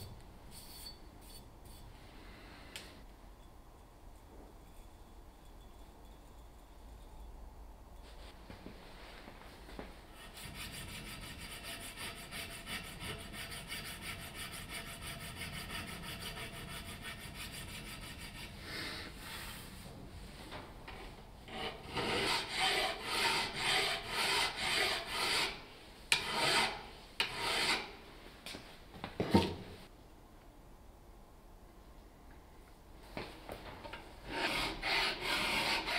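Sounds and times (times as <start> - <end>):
hand file rasping on metal: 10.2 - 18.6, 21.5 - 27.9, 34.3 - 35.9.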